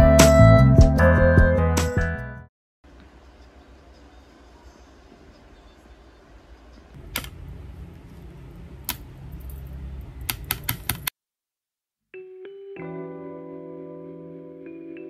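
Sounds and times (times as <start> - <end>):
background music with held notes: 0.0 - 2.4, 12.2 - 15.0.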